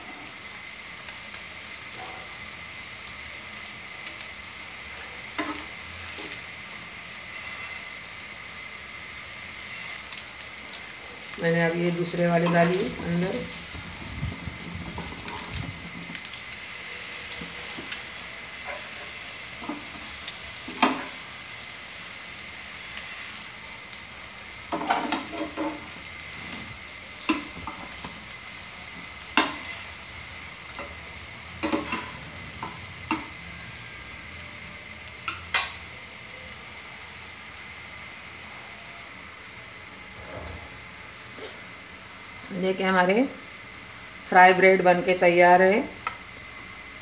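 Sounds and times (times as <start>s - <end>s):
bread sizzling in a pan: 0.0s - 47.0s
spatula scraping a pan: 17.4s - 21.2s, 24.7s - 29.8s.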